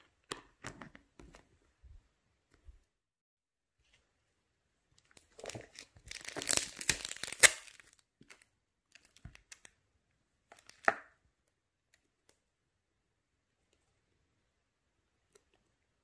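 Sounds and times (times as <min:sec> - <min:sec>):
plastic film crinkling and tearing: 0:05.4 - 0:09.6.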